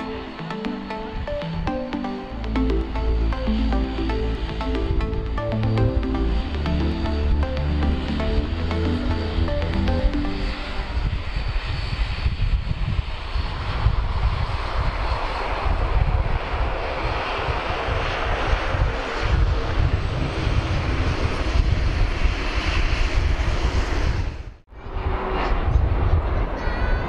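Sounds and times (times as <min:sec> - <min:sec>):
faint high whine: 0:00.0 - 0:12.3.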